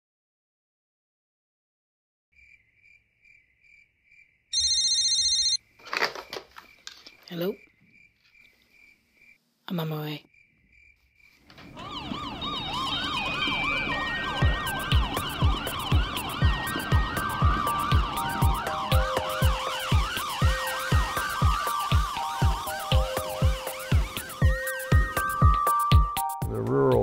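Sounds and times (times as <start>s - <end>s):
emergency vehicle siren: 11.5s - 26.3s
held synth notes: 11.7s - 27.0s.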